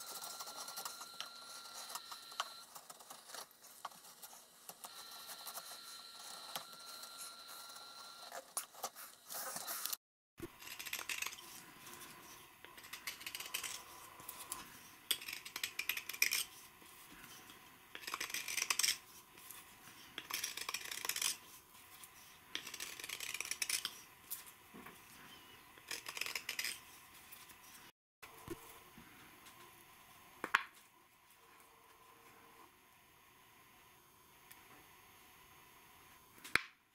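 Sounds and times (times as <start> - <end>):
knife shaving wood: 0.0 - 24.5, 25.8 - 27.9.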